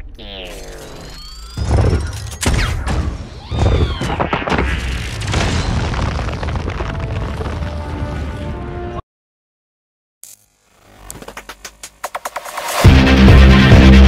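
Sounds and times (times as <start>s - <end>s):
rumble of fire and debris: 4.3s - 8.7s
heavy explosion booms: 5.0s - 8.1s.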